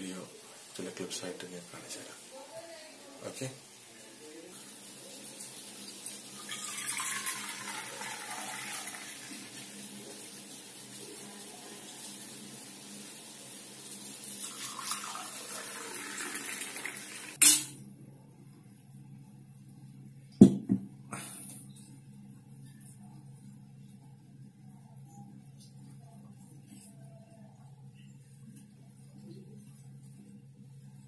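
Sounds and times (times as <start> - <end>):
liquid pouring and splashing: 5.4 - 11.3, 14.3 - 17.4
knocks: 20.4 - 20.9.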